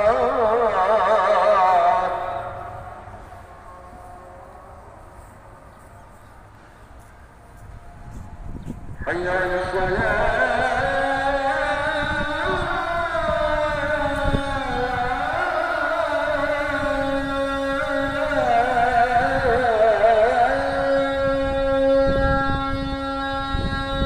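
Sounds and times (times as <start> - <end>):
low drone: 0.0 - 24.0
person chanting devotional melody: 0.0 - 24.0.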